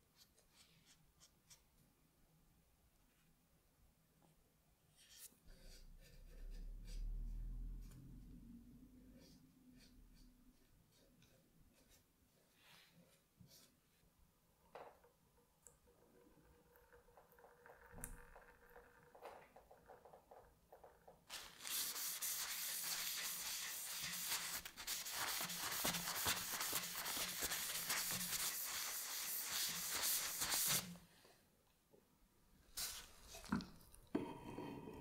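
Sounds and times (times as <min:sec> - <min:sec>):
cloth rubbing wooden handle: 0:21.3 - 0:31.0.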